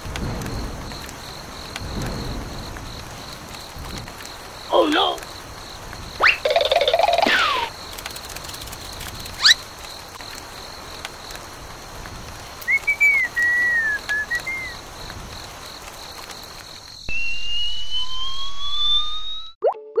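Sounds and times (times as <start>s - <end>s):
background hiss: 0.0s - 17.1s
cartoon whistles: 6.2s - 7.7s, 12.7s - 14.8s, 17.1s - 20.0s.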